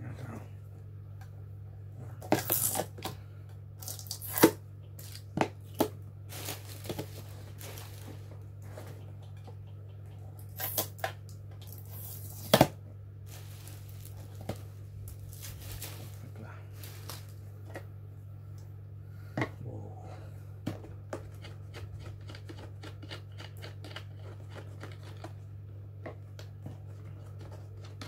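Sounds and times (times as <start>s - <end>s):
steady low hum: 0.0s - 28.0s
tape tearing: 2.3s - 3.0s, 3.8s - 5.2s, 10.5s - 11.0s, 11.6s - 14.5s.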